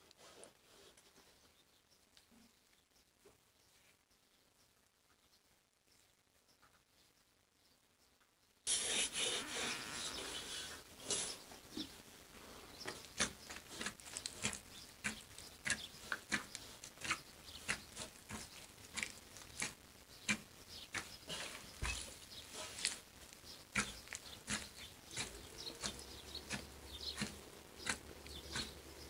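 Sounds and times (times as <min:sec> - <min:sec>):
hands kneading dough in bowl: 0:12.9 - 0:29.0.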